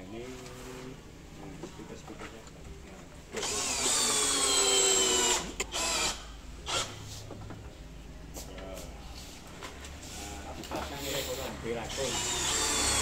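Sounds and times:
power drill driving screws: 3.3s - 7.0s, 11.9s - 13.0s.

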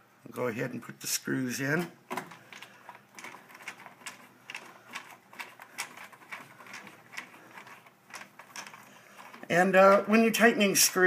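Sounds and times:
screwdriver turning a screw: 2.5s - 10.0s.

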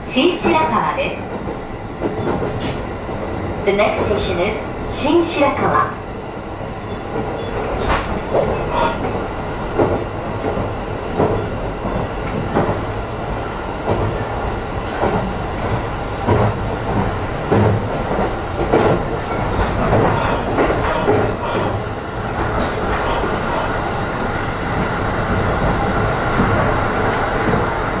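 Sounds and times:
train rumble inside car: 0.0s - 28.0s
wheels clacking over rail joints: 7.1s - 23.7s.

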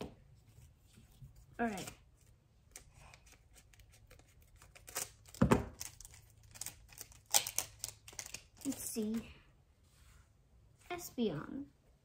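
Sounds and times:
wrapper crinkling: 4.5s - 9.0s.

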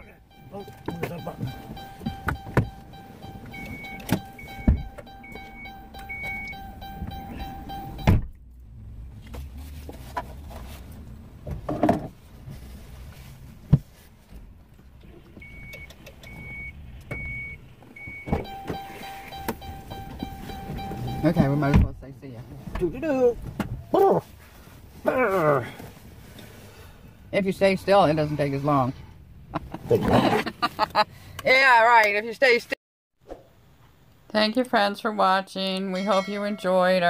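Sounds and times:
door-open warning chime beeping: 0.0s - 8.2s, 15.4s - 21.7s
knocks and clicks: 0.3s - 8.4s
car door thudding shut: 4.0s - 5.1s, 7.9s - 8.3s.

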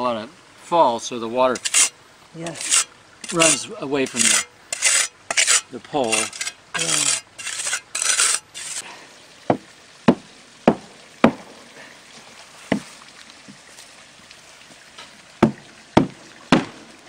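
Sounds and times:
tool knocking on wood: 9.5s - 11.4s.

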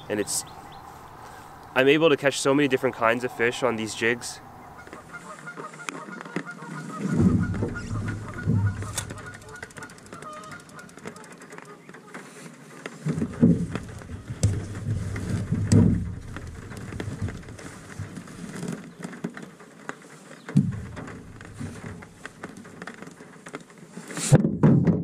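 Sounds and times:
wind buffeting microphone: 0.0s - 5.3s, 6.8s - 10.9s, 13.1s - 18.6s
knocking and handling noise: 24.2s - 25.0s.

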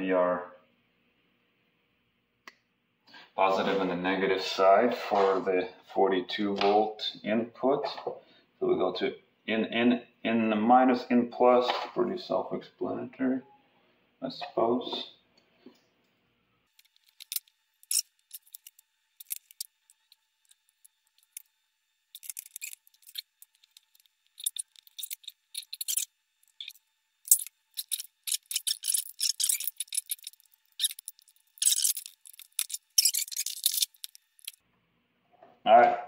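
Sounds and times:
wires and circuit board handled: 16.7s - 21.4s, 22.1s - 34.6s.

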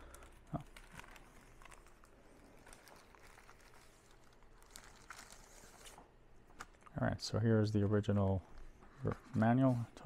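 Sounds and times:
plastic bag crinkling: 0.5s - 5.9s.

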